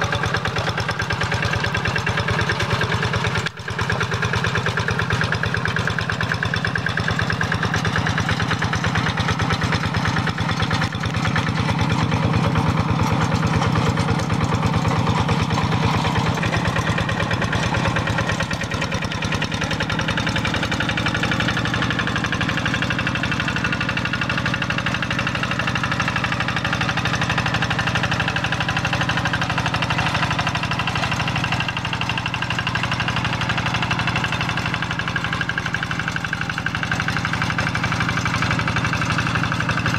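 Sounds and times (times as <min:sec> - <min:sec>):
diesel engine chugging: 0:00.0 - 0:39.9.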